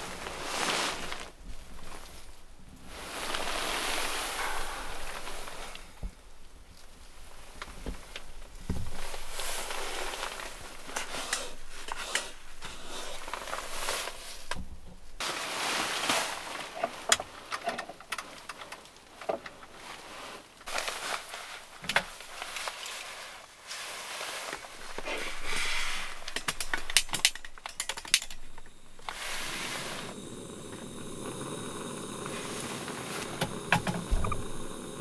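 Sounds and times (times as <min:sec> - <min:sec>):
sleeping bag fabric rustling: 0:00.0 - 0:14.5, 0:15.2 - 0:17.5, 0:19.2 - 0:27.6, 0:28.8 - 0:30.2
small things clicking: 0:25.0 - 0:29.2.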